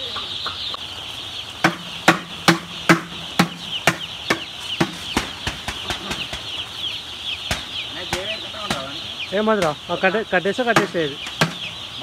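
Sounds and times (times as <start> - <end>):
chicks peeping: 0.0 - 12.0
sharp knocks: 1.6 - 6.6, 7.5 - 9.8, 10.7 - 11.8.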